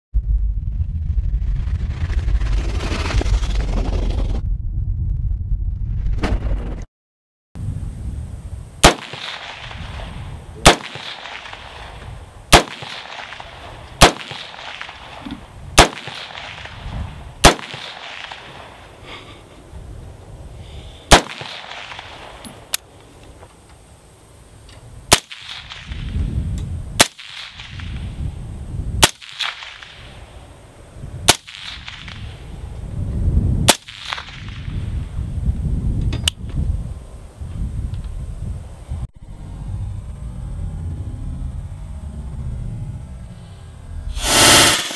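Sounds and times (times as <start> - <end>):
rifle firing single shots: 8.8 - 10.0, 10.6 - 15.2, 15.8 - 16.8, 17.4 - 18.8, 21.1 - 22.4.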